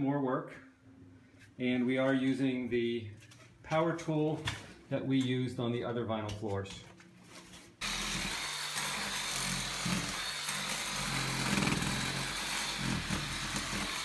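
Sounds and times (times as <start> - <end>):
oscillating multi-tool scraping: 7.8 - 14.0.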